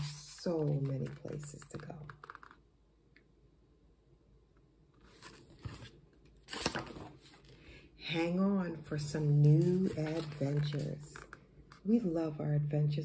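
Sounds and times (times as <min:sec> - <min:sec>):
cardboard pages rustling: 0:00.2 - 0:02.6, 0:05.0 - 0:07.6, 0:09.4 - 0:11.8.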